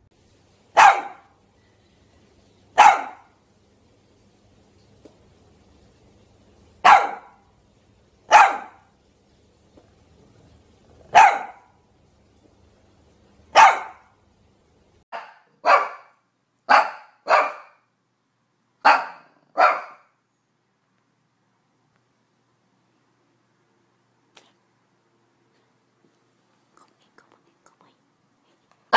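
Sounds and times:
small dog barking: 0:00.7 - 0:01.4, 0:02.8 - 0:03.4, 0:06.8 - 0:07.4, 0:08.3 - 0:08.9, 0:11.1 - 0:11.8, 0:13.5 - 0:14.2, 0:15.1 - 0:17.9, 0:18.8 - 0:20.2.

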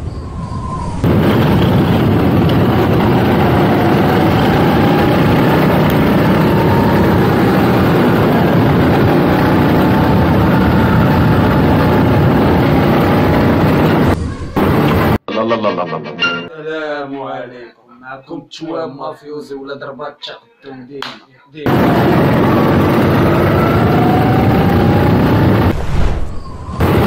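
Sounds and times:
wind rushing on microphone: 0:00.0 - 0:14.2, 0:21.7 - 0:27.0
go-kart engine running: 0:01.0 - 0:15.2, 0:21.7 - 0:25.6.

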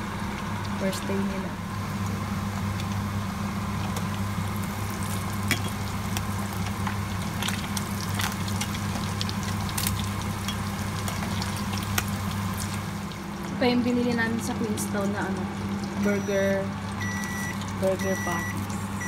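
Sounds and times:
meat sizzling in oil: 0:02.2 - 0:13.4.

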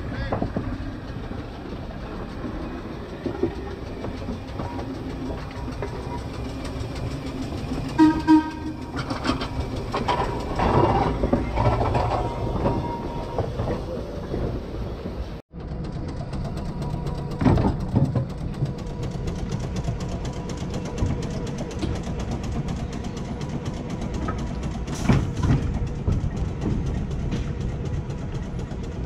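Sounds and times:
streetcar wheels rumbling over track: 0:00.0 - 0:29.0
loud pitched horn blasts: 0:07.9 - 0:09.3.

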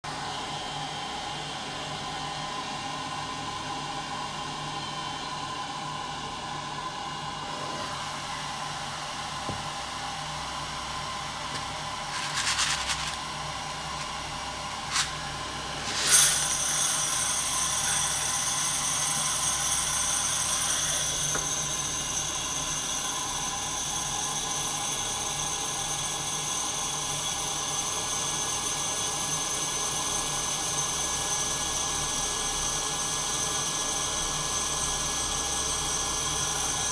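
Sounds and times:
coffee roaster humming: 0:00.1 - 0:36.9
beans rushing into drum: 0:11.6 - 0:14.2, 0:14.8 - 0:15.2, 0:15.8 - 0:16.7.

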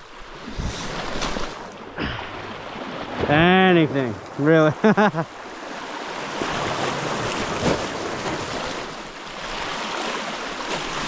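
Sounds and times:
small waves washing over rocks: 0:05.5 - 0:11.0.

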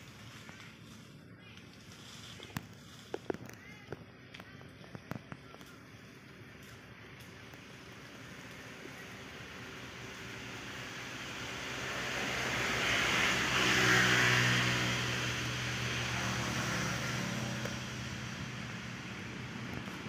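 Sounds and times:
vehicle passing by: 0:07.6 - 0:20.0.

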